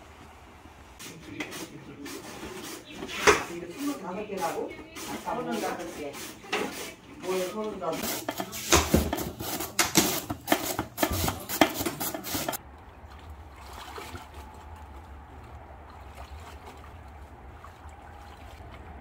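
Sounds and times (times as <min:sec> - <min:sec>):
radish shredding on slicer: 0:08.0 - 0:12.6.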